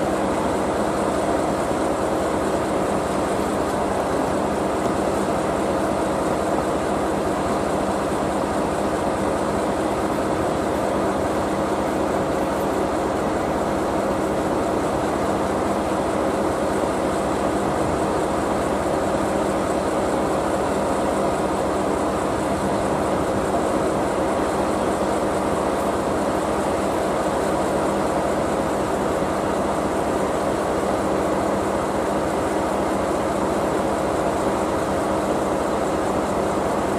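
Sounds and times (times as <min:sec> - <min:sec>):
locomotive hum: 0:00.0 - 0:36.9.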